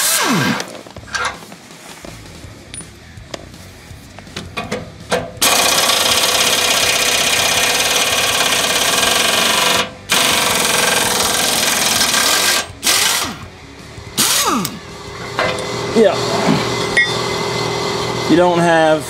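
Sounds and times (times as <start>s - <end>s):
air impact wrench hammering: 4.4s - 13.5s, 14.2s - 16.0s, 16.6s - 18.2s.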